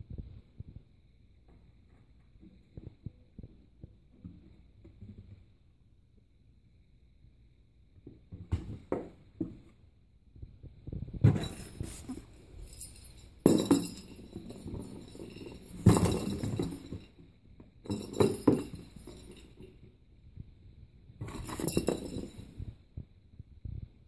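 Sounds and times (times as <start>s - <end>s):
toys clinking rattle: 11.4s - 17.3s, 21.3s - 22.6s.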